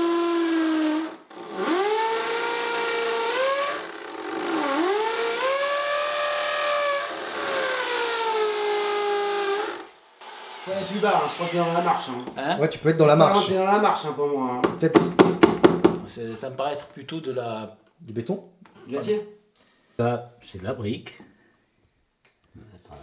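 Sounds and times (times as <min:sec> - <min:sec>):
electric drill boring into brick: 0:00.0 - 0:12.2.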